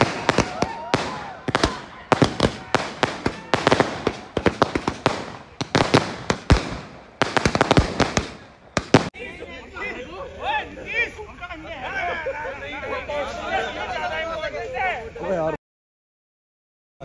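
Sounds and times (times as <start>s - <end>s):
fireworks bangs and crackles: 0.0s - 9.2s.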